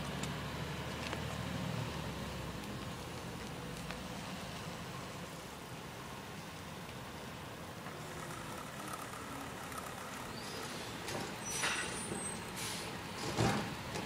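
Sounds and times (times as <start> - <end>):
garbage truck running: 7.8 - 14.0.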